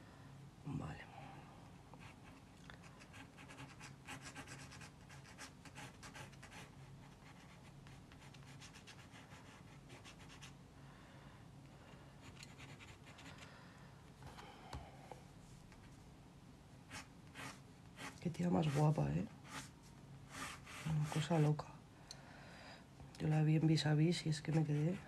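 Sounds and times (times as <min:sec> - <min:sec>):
faint low hum: 0:00.0 - 0:25.0
pencil scratching on paper: 0:03.0 - 0:10.5, 0:12.2 - 0:13.4, 0:16.9 - 0:19.7, 0:20.3 - 0:21.5, 0:24.4 - 0:25.0.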